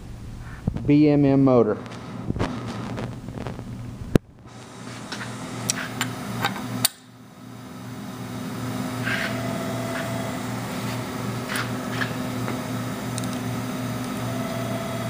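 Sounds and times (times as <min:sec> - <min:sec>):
low pulsing hum: 0:00.0 - 0:05.6.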